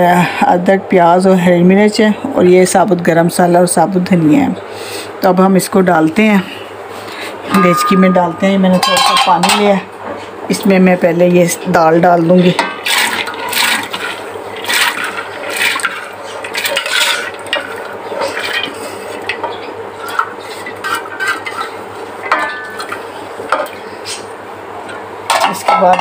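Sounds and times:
spoon scraping metal bowl: 12.4s - 17.4s
lentils pattering into water: 12.8s - 18.7s.

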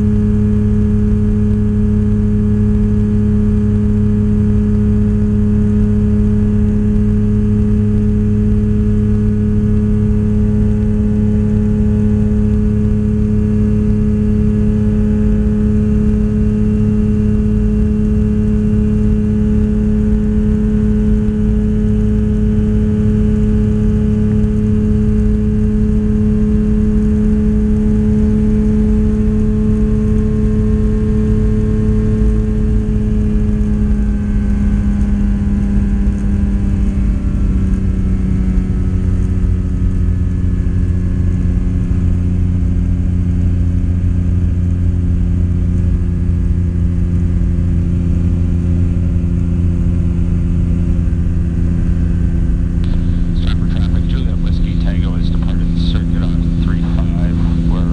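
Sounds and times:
light aircraft engine and propeller: 0.0s - 57.9s.

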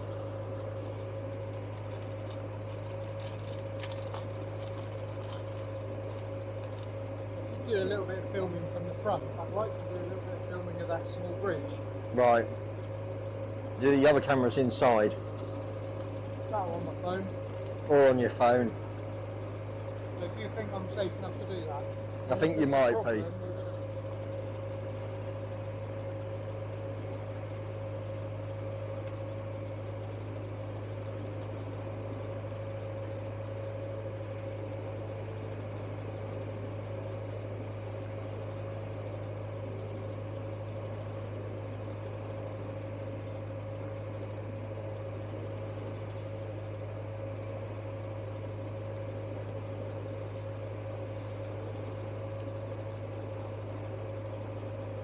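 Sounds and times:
boat diesel engine humming: 0.0s - 28.9s.

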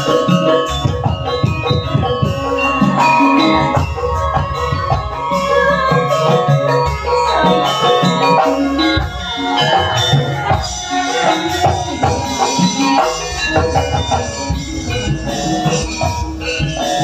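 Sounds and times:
amplified band accompaniment: 0.0s - 17.0s
woman singing into microphone: 2.7s - 12.1s.

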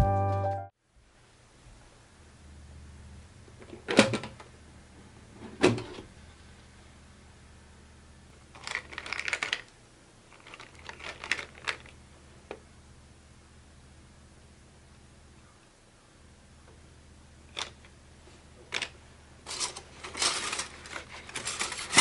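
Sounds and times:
cookie cutters clattering: 8.6s - 9.7s, 18.7s - 22.0s.

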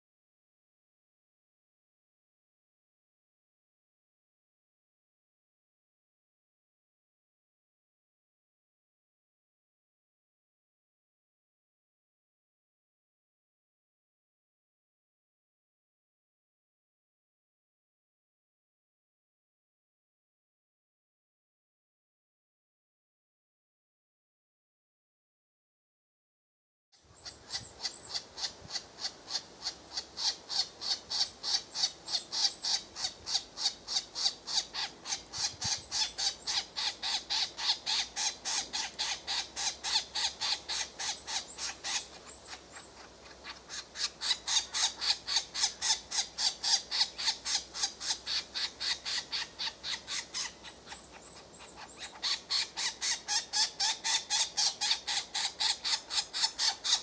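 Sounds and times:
woodpecker nestlings begging calls: 27.1s - 57.0s.

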